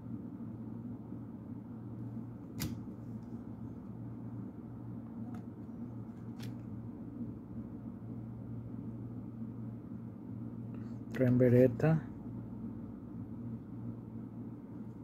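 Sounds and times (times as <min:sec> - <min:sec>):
low hum: 0:00.0 - 0:15.0
cards snapping clicks: 0:02.5 - 0:02.9
cards shuffled by hand: 0:05.4 - 0:06.7.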